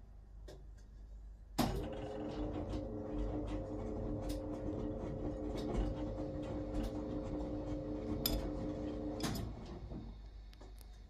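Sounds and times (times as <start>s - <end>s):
motor stopping with clunk: 1.6s - 10.1s
washing machine motor humming: 1.7s - 10.2s.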